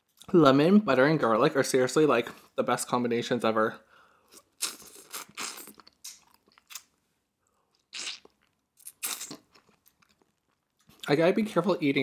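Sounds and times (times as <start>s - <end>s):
wet crunching bites and chews: 4.4s - 7.0s, 7.8s - 11.0s.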